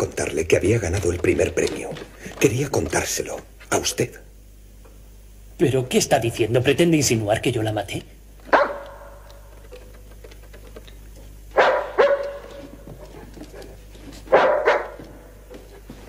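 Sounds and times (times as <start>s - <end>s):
dog barking: 8.5s - 9.4s, 11.5s - 12.8s, 14.3s - 15.3s.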